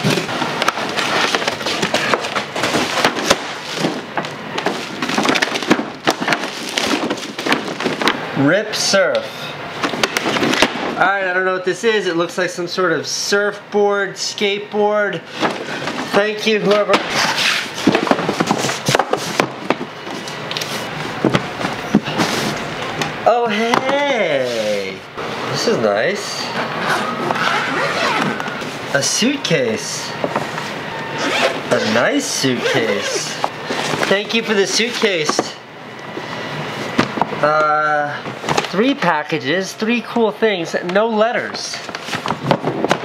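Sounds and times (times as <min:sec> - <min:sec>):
plastic packaging crinkling: 0:00.7 - 0:08.2.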